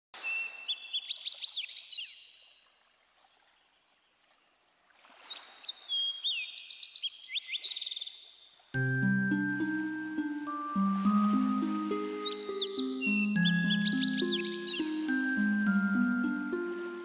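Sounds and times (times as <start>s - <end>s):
songbird singing: 0.2s - 2.6s, 5.4s - 17.0s
music with mallet notes: 8.8s - 17.0s.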